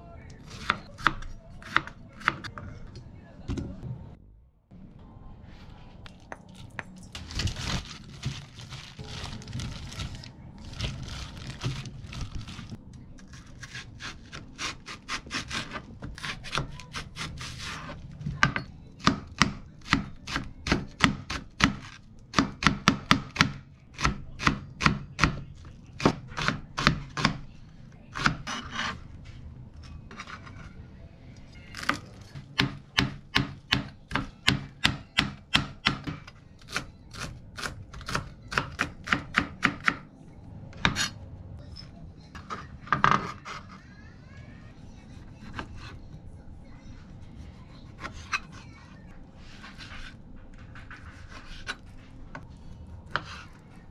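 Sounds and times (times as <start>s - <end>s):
knife chopping on plastic board: 13.6s - 25.4s, 31.8s - 40.0s.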